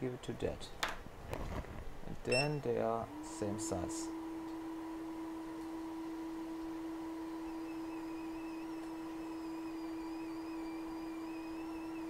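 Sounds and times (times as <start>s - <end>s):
steady hum: 0.0s - 12.0s
faint high whine: 2.2s - 12.0s.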